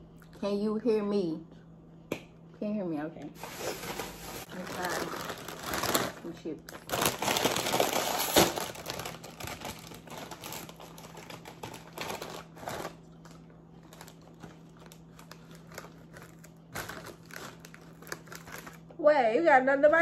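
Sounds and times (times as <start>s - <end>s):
chip bag crinkling: 3.4s - 18.9s.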